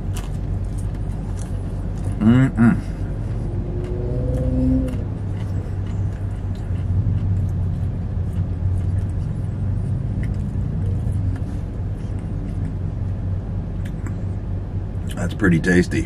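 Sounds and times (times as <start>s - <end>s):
chewing clicks: 3.3s - 12.8s.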